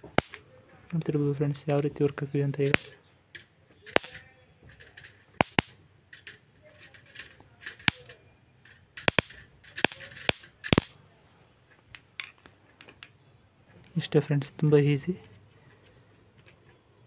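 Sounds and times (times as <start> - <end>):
electric sparks snapping: 0.0 - 0.4, 3.9 - 4.2, 5.4 - 5.8, 7.8 - 8.2, 9.0 - 11.0.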